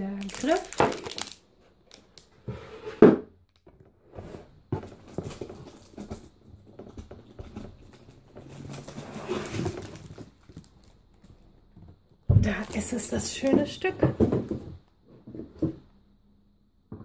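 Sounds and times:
cardboard scraping and sliding: 0:02.4 - 0:03.2, 0:04.0 - 0:10.4.

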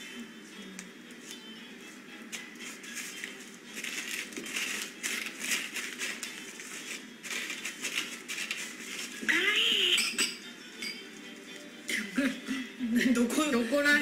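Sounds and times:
paper crinkling: 0:02.4 - 0:09.3
plastic bag crinkling: 0:02.9 - 0:09.3.

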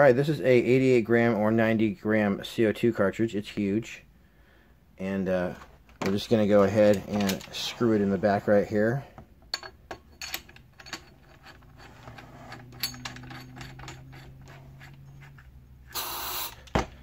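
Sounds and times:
metallic clicks and scrapes: 0:05.6 - 0:08.2, 0:09.5 - 0:16.7
gas hiss: 0:15.9 - 0:16.6.

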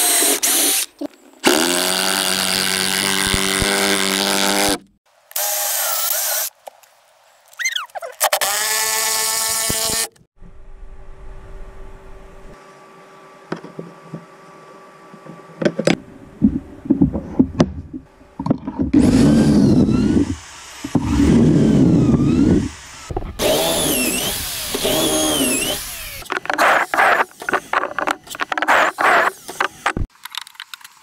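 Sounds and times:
power tool motor whine: 0:19.0 - 0:28.0.

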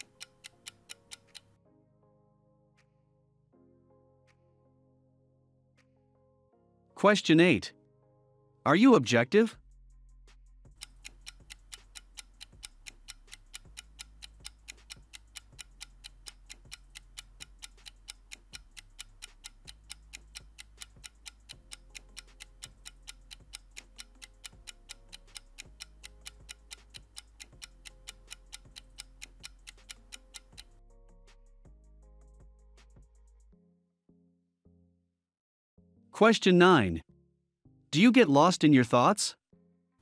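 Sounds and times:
clock ticking: 0:00.0 - 0:01.5, 0:10.7 - 0:30.7
soft low music: 0:00.0 - 0:33.7.

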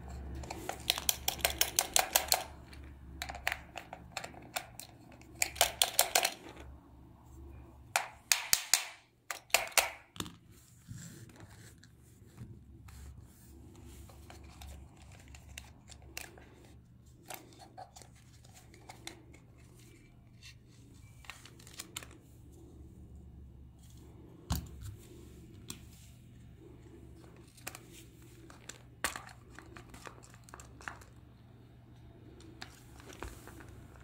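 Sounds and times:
plastic toy clicks and rubs: 0:00.1 - 0:06.8, 0:13.9 - 0:22.2
low steady hum: 0:10.0 - 0:34.0.

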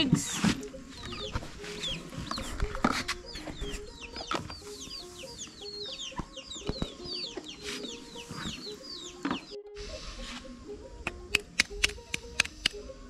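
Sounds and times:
chicks peeping: 0:00.2 - 0:09.6.

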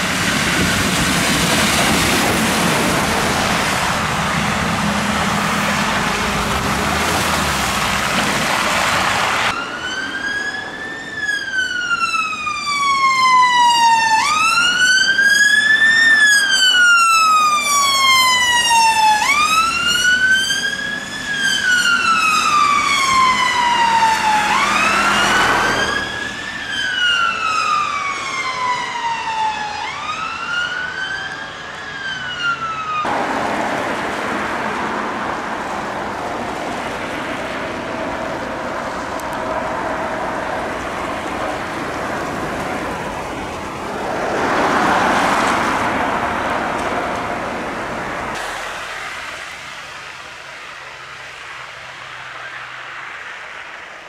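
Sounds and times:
ambulance siren wailing: 0:08.5 - 0:33.6, 0:52.2 - 0:53.4
tyres hissing through wet slush: 0:48.3 - 0:51.8.

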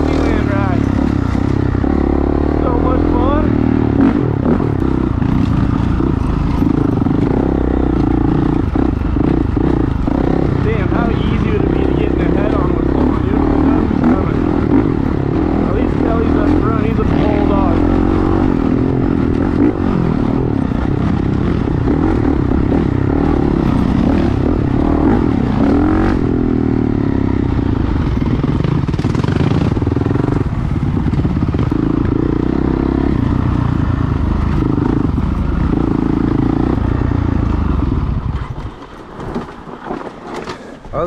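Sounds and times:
dirt bike engine revving: 0:00.0 - 0:38.7.

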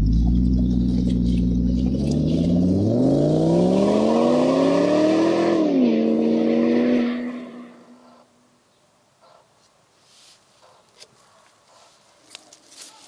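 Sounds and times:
engine idling and revving: 0:00.0 - 0:07.3.

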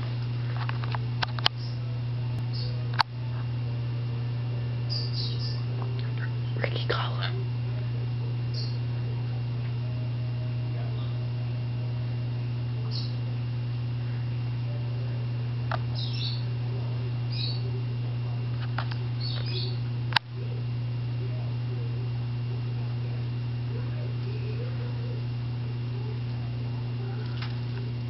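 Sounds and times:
low hum: 0:00.0 - 0:28.0
parrots chirping: 0:04.9 - 0:07.3, 0:15.9 - 0:16.5, 0:17.3 - 0:17.7, 0:19.2 - 0:19.8.

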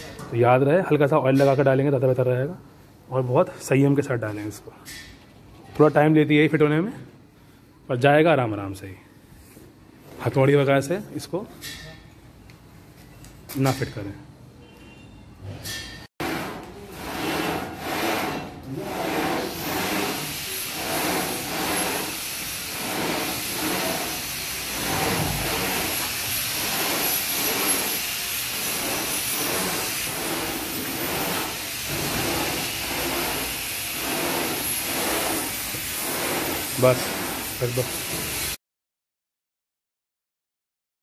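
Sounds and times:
gym machine carriage rolling: 0:15.6 - 0:38.6.

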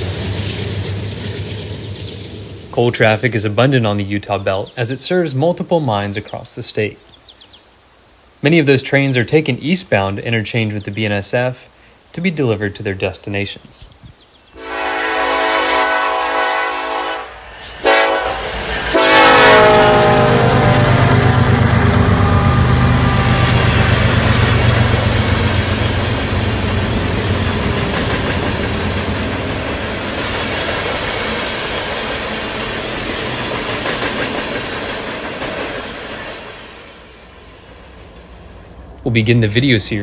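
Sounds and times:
freight train cars rumbling by: 0:00.0 - 0:07.5, 0:14.3 - 0:40.0
diesel locomotive horn: 0:14.6 - 0:25.7.

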